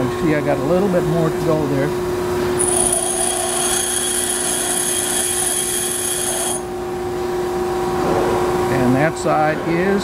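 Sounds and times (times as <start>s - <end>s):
grinder motor hum: 2.3s - 6.9s
high-pitched metal grinding: 2.6s - 6.7s.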